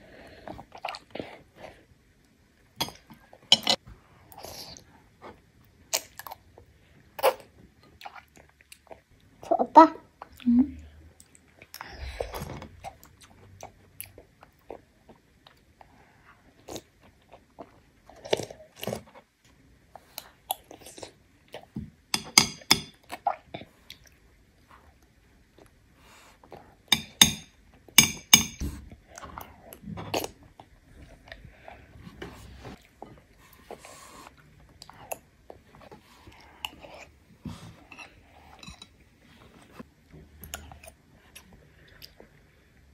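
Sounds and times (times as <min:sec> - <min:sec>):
child chewing with wet mouth sounds: 0:00.0 - 0:42.9.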